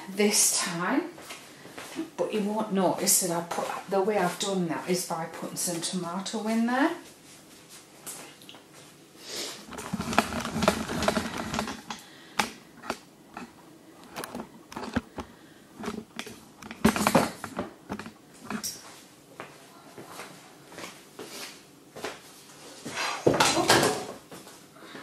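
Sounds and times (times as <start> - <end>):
clicks and knocks of handling: 9.7 - 18.8.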